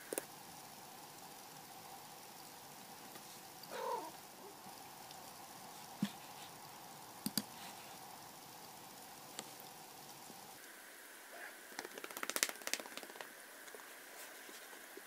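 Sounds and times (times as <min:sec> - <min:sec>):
hand patting cat: 0:06.0 - 0:06.4.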